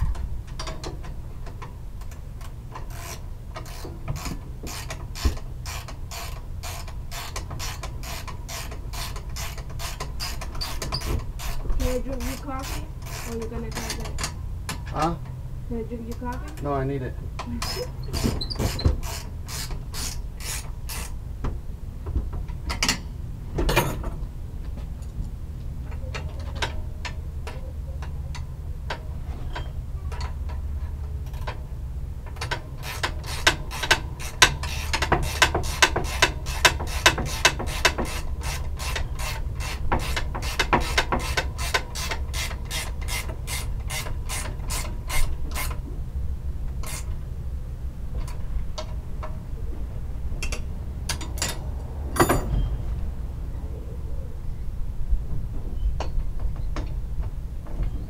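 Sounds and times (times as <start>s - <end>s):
ratchet wrench clicking: 2.8s - 15.0s, 17.6s - 21.2s, 32.3s - 45.8s.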